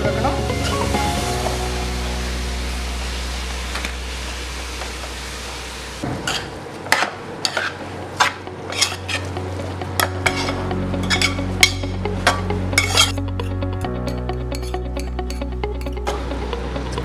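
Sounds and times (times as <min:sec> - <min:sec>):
cabbage sizzling in oil: 0:00.6 - 0:06.0
metal spoon scraping pot: 0:08.7 - 0:09.2, 0:12.8 - 0:16.0.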